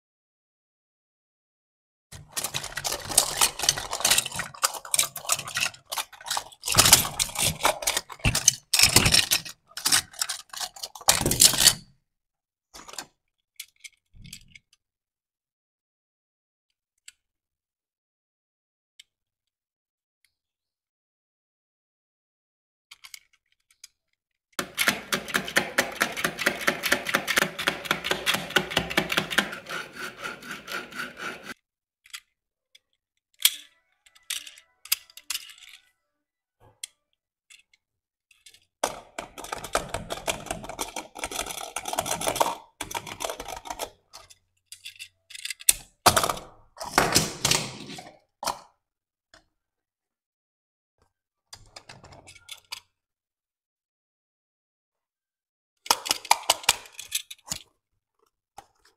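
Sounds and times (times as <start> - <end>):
toy car clicking and tapping: 2.2 - 11.8, 24.6 - 35.9, 36.8 - 48.6, 55.9 - 57.6
toy car knocks: 24.6 - 29.7.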